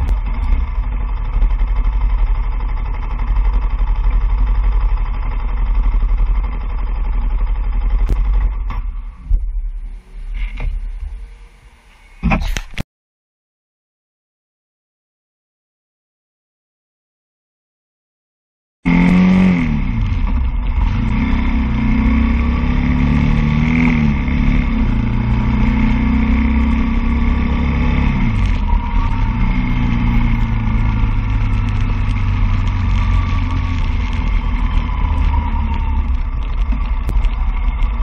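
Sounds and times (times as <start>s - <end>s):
road and wind noise: 0.0s - 12.8s, 18.9s - 38.0s
vehicle engines speeding up: 18.9s - 38.0s.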